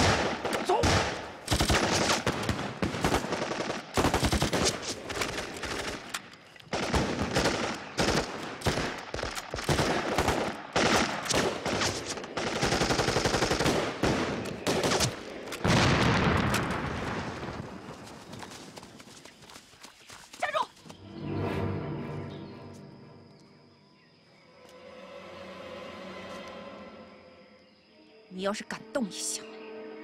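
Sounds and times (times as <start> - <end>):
automatic gunfire bursts: 0.0 - 6.0, 6.7 - 15.2.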